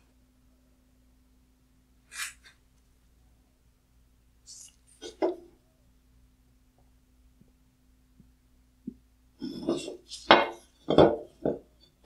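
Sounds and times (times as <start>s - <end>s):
metal scraping on wood: 9.4s - 11.6s.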